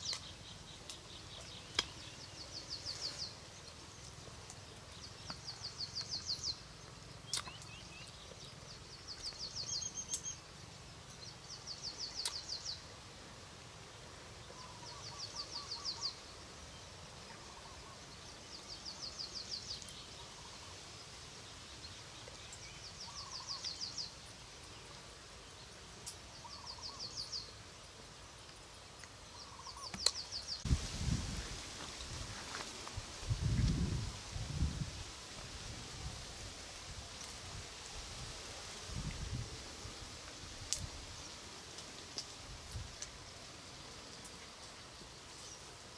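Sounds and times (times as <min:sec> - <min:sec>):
rustle: 0:00.0 - 0:45.9
faint lower bird calls: 0:14.4 - 0:16.4, 0:17.2 - 0:20.9, 0:22.3 - 0:24.2, 0:26.3 - 0:27.6, 0:29.3 - 0:30.6.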